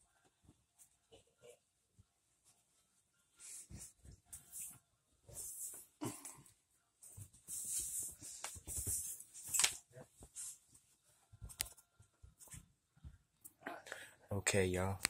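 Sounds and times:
clothing rustling: 7.0s - 13.3s.

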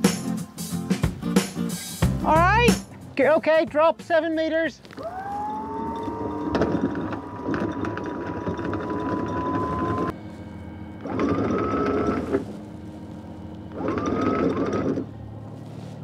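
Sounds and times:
windlass motor whining: 4.8s - 16.0s
chain rattling: 5.9s - 10.1s.

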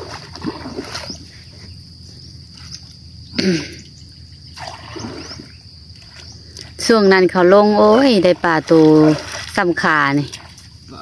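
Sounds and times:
high insect drone: 0.0s - 11.0s
water dripping and trickling: 4.6s - 11.0s.

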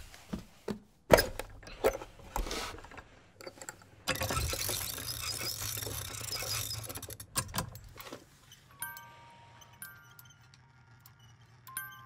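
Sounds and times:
music box winding ratchet clicking: 4.1s - 8.0s.

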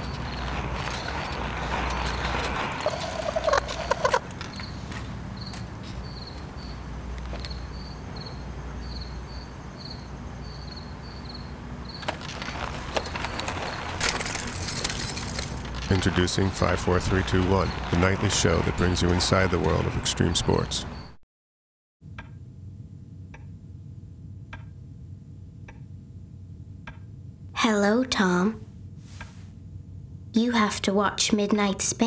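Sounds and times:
steady low hum: 0.0s - 21.1s, 22.1s - 31.2s
crickets chirping: 0.0s - 21.2s.

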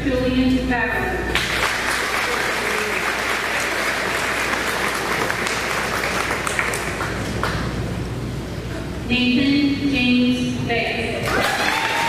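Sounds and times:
audience applauding: 1.4s - 7.6s, 11.3s - 12.0s.

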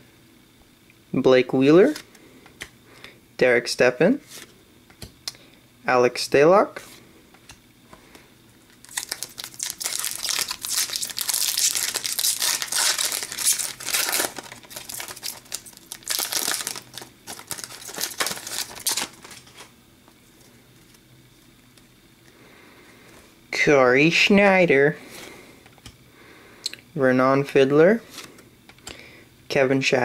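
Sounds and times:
cards rustling: 7.4s - 21.0s
foil wrapper crinkling: 8.7s - 19.8s.

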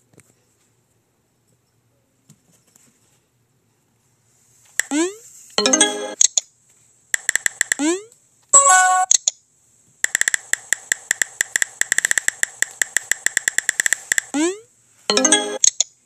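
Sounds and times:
phone keyboard typing clicks: 7.2s - 7.9s, 10.0s - 14.3s.

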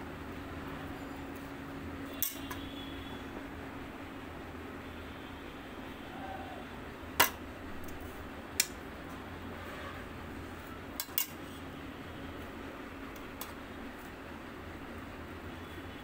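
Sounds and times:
metal spoon clinking on plate: 11.0s - 11.4s.

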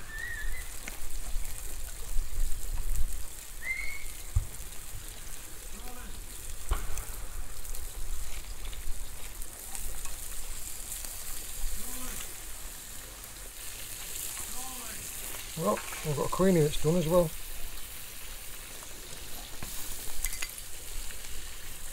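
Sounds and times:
scallops sizzling in butter: 0.0s - 21.9s.

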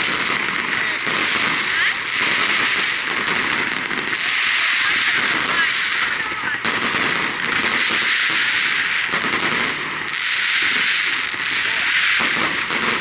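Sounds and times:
fireworks crackling: 0.0s - 13.0s.

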